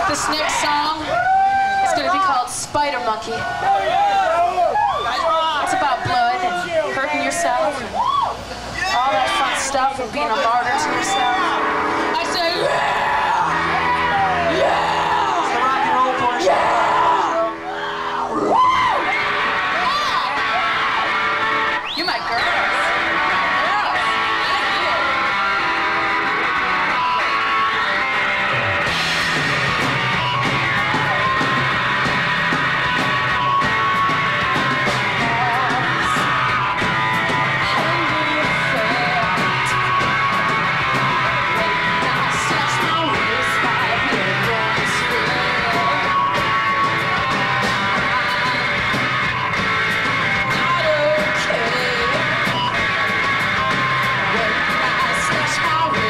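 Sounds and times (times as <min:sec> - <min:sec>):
drums: 0:00.0 - 0:56.0
electric guitar: 0:00.0 - 0:56.0
bass guitar: 0:08.4 - 0:56.0
woman singing into microphone: 0:35.2 - 0:36.2, 0:37.6 - 0:39.8, 0:41.9 - 0:46.2, 0:50.7 - 0:52.2, 0:54.3 - 0:56.0.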